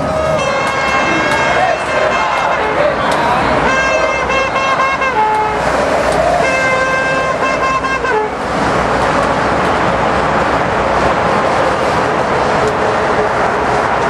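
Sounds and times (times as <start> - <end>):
crowd of marchers: 0.0 - 7.6
horn steady tone: 0.0 - 8.4.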